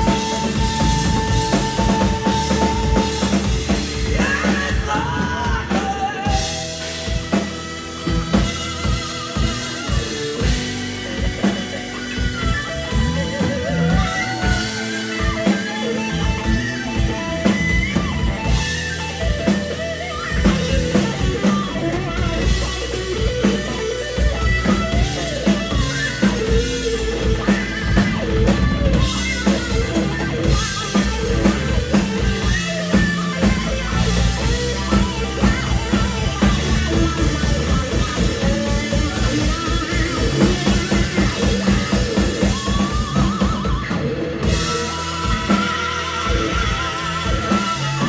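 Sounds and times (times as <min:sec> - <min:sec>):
drum kit: 0:00.0 - 0:48.0
electric guitar: 0:00.0 - 0:48.0
keyboard: 0:00.0 - 0:48.0.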